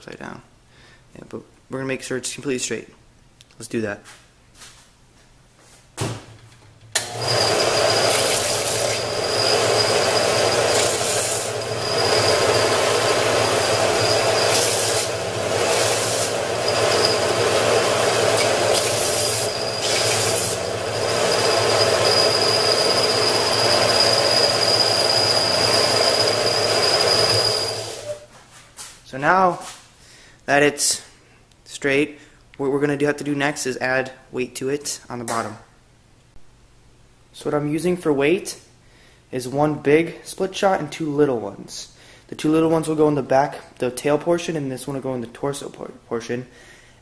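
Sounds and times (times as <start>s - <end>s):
belt sander running: 7.0s - 28.2s
wood rasping on sanding belt: 7.9s - 27.7s.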